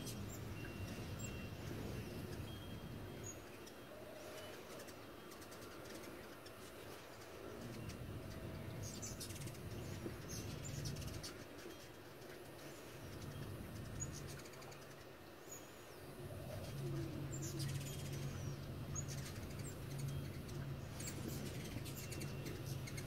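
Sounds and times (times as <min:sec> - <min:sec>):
hummingbird wings humming: 0:00.0 - 0:23.0.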